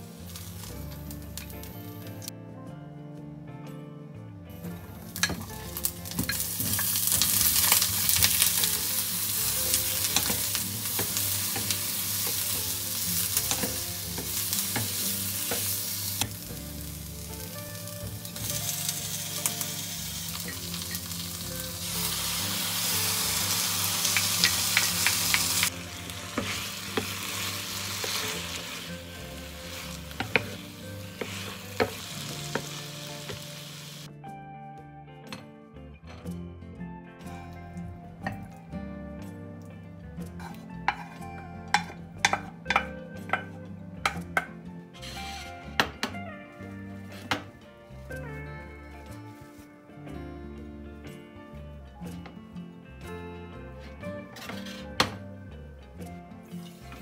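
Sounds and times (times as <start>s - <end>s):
vegetables sizzling in frying pan: 0.0s - 1.9s, 5.1s - 34.1s
spatula scraping pan: 21.9s - 32.7s, 40.4s - 43.4s, 45.0s - 45.9s, 54.3s - 55.0s.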